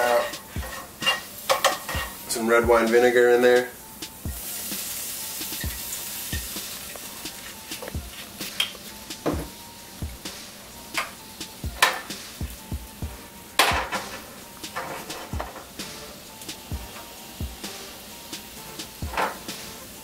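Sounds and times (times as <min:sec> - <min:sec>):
pan and utensil knocks: 0:00.0 - 0:02.2, 0:11.0 - 0:12.2, 0:13.6 - 0:15.8, 0:19.0 - 0:19.6
garlic sizzling in a frying pan: 0:00.0 - 0:20.0.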